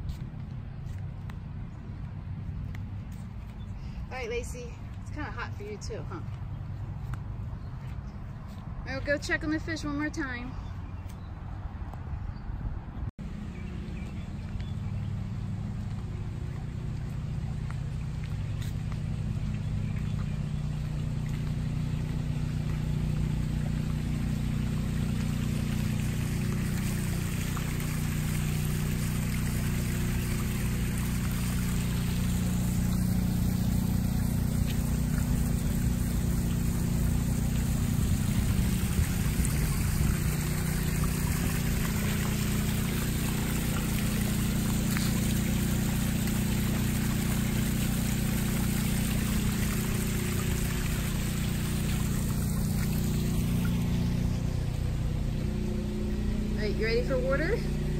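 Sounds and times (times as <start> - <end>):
steady low hum: 13.2 - 57.9
waterfall splashing into pond: 16.4 - 56.5.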